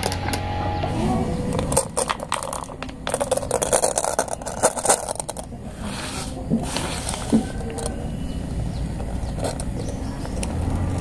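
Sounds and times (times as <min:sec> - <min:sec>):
scraping: 0:00.0 - 0:11.0
glass marbles clicking and rattling: 0:01.5 - 0:05.6, 0:09.0 - 0:11.0.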